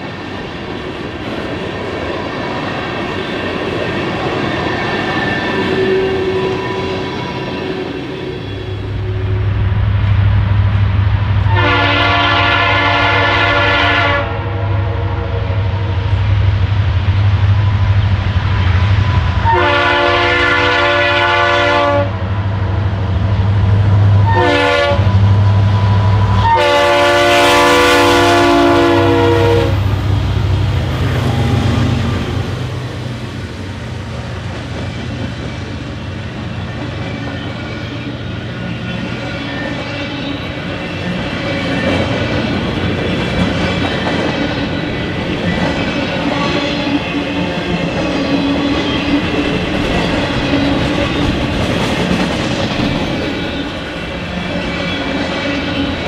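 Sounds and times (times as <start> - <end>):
low rumble of passing train: 0.0 - 56.0
locomotive air horn blasts: 11.5 - 15.0, 19.4 - 22.2, 24.2 - 25.2, 26.4 - 29.9.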